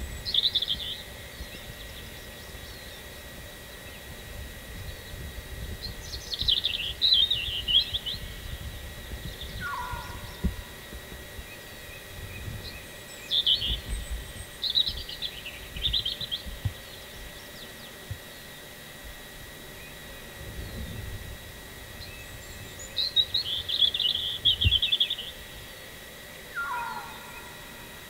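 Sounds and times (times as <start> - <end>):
songbirds chirping: 0.0 - 28.0
bird falling call: 9.6 - 10.6, 26.5 - 27.8.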